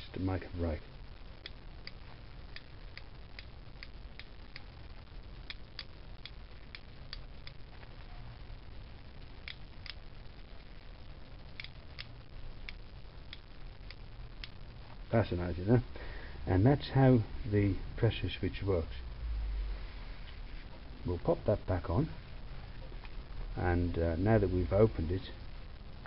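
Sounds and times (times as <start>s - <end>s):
faint low hum: 0.0s - 26.0s
switch contacts clicking: 11.6s - 14.6s.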